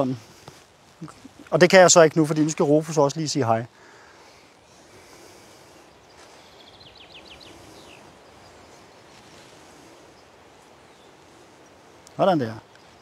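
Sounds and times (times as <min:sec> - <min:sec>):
bird chirping: 0:04.6 - 0:13.0.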